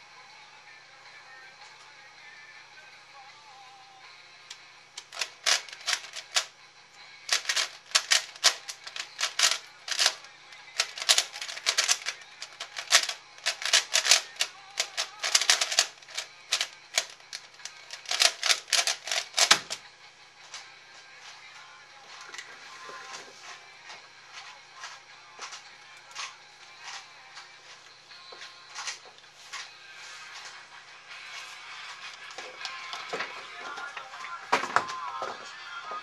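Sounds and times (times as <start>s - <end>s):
plastic cube turning clicks: 5.0s - 6.5s, 7.3s - 10.2s, 10.8s - 19.8s.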